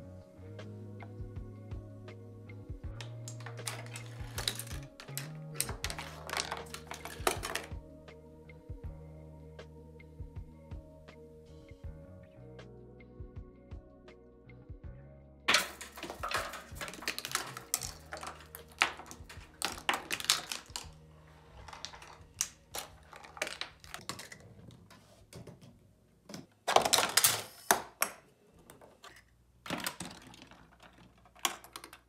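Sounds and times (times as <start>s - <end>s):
plastic parts and balls clattering: 2.9s - 7.8s, 15.5s - 32.0s.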